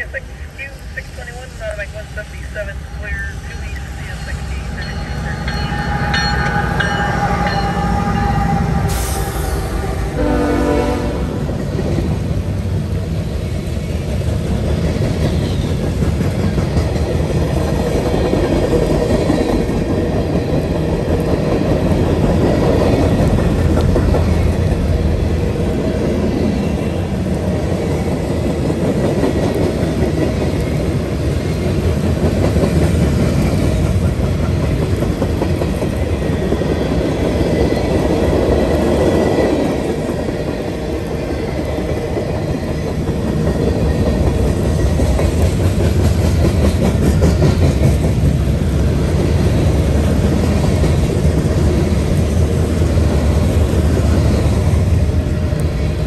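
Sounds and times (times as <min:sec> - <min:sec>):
diesel locomotives passing: 0:00.0 - 0:56.0
train horn: 0:04.6 - 0:11.5.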